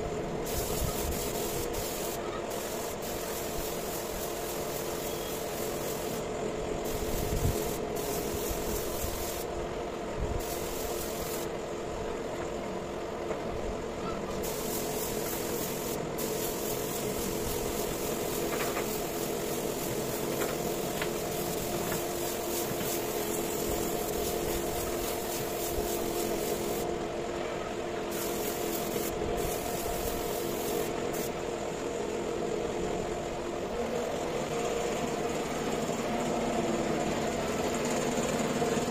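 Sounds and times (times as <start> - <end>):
steady motor hum: 0.0 - 38.9
spray gun hissing: 0.4 - 9.5, 10.4 - 11.5, 14.3 - 26.9, 28.1 - 31.4.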